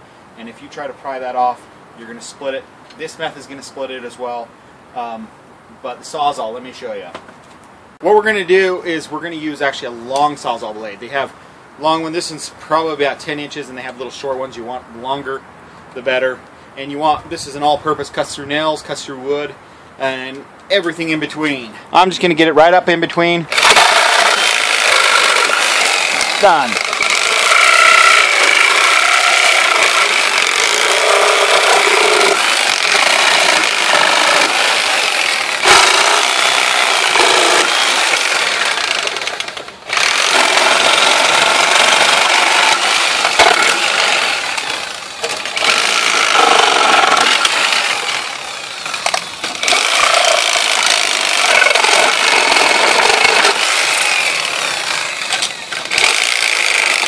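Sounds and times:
reciprocating saw cutting: 0:23.5 - 0:57.0.

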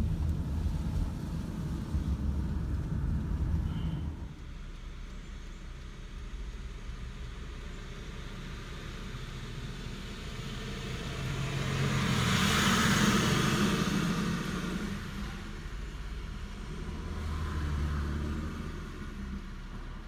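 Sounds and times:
passing vehicle rushing: 0:00.0 - 0:04.4, 0:09.3 - 0:20.0
car cabin rumble: 0:00.0 - 0:09.4.

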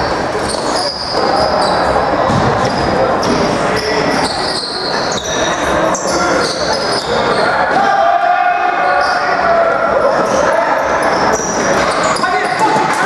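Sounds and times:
players' voices: 0:00.0 - 0:13.0
short high squeaks: 0:00.4 - 0:01.9, 0:02.7 - 0:07.6.

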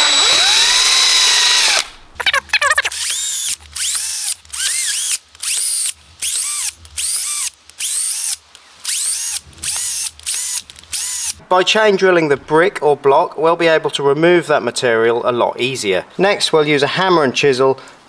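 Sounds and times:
cordless drill boring into wall: 0:00.0 - 0:11.4.

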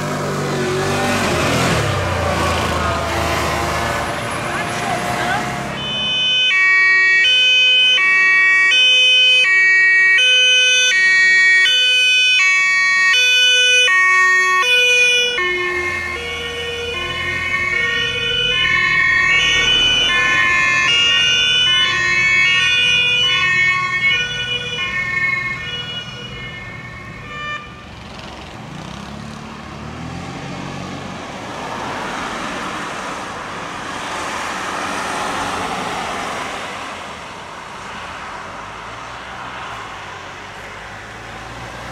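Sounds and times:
heavy vehicle engine: 0:00.0 - 0:06.5, 0:14.3 - 0:41.9
two-tone siren: 0:05.7 - 0:28.0.

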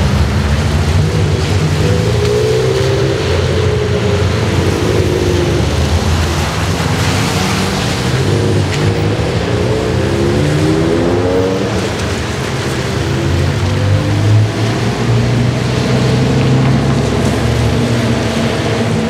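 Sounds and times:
sports car engines rumbling: 0:00.0 - 0:19.0.

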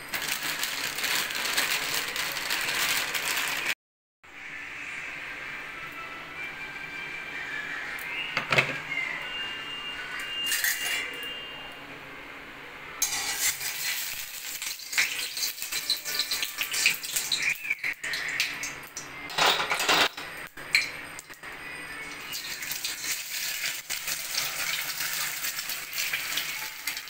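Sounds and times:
steel utensils clinking on a pan: 0:13.0 - 0:17.3, 0:19.3 - 0:21.3.

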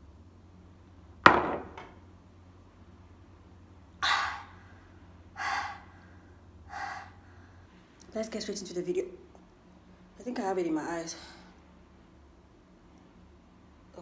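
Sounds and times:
woman exhaling hard: 0:04.0 - 0:04.7, 0:05.4 - 0:06.0, 0:06.7 - 0:07.3.

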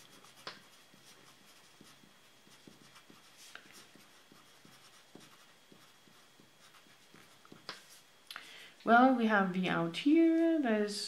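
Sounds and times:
pencil scratching on paper: 0:00.0 - 0:08.0.

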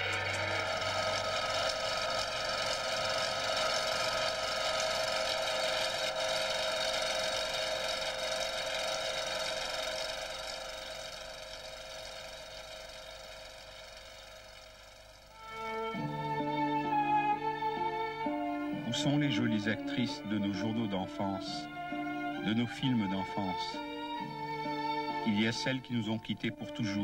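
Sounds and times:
droning chord of held tones: 0:00.0 - 0:06.8.

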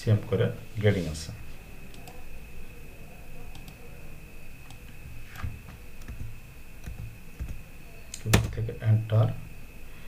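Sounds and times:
low room hum: 0:00.0 - 0:10.0
computer keyboard and mouse clicks: 0:05.4 - 0:07.6.

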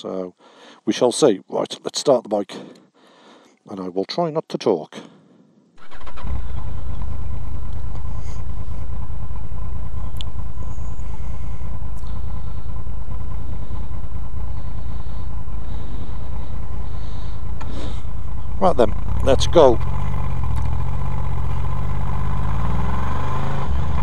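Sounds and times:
motorcycle engine idling: 0:05.1 - 0:24.0.

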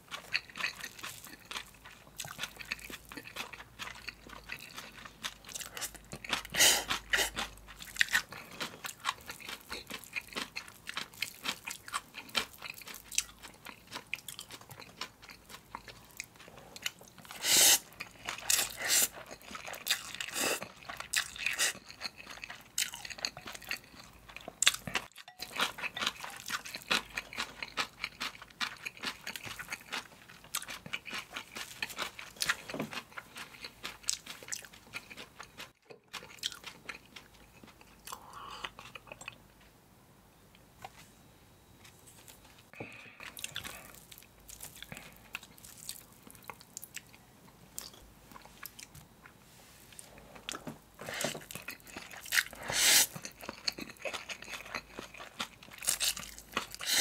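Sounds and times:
wet chewing with crunches: 0:00.0 - 0:39.4, 0:42.2 - 0:47.2, 0:47.8 - 0:57.0
slurping noodles: 0:17.3 - 0:17.9, 0:52.6 - 0:53.2, 0:56.8 - 0:57.0.

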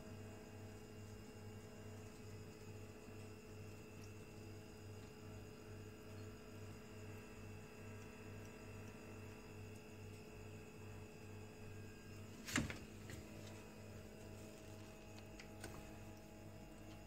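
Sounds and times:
electrical hum: 0:00.0 - 0:17.0
faint ticks: 0:07.4 - 0:10.3.

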